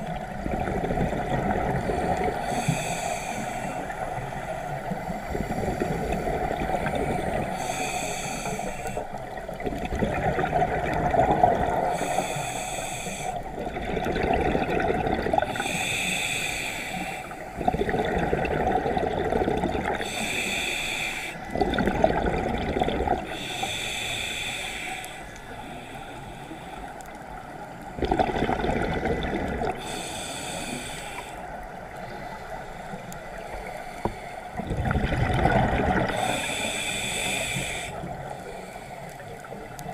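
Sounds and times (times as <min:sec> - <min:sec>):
burble of exhaled bubbles: 0:00.0 - 0:02.5, 0:05.3 - 0:07.6, 0:09.3 - 0:12.0, 0:13.5 - 0:15.6, 0:17.6 - 0:20.1, 0:21.5 - 0:23.4, 0:27.8 - 0:29.8, 0:34.5 - 0:36.3
hissing regulator inhale: 0:01.8 - 0:09.6, 0:11.7 - 0:13.7, 0:15.4 - 0:18.0, 0:19.9 - 0:21.5, 0:23.2 - 0:27.7, 0:29.7 - 0:34.6, 0:35.9 - 0:39.9.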